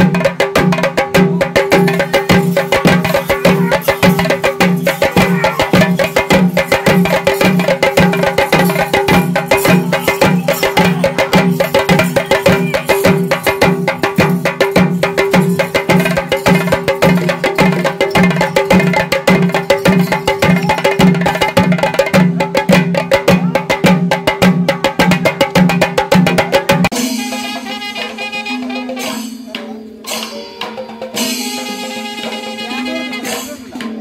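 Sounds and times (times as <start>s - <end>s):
deep drum beat: 0.0s - 27.0s
fast drum strokes: 0.0s - 34.0s.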